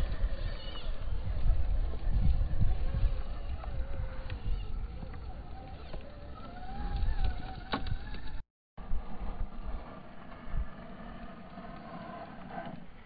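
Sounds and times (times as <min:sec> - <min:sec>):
electric motor whining: 0:00.0 - 0:08.4.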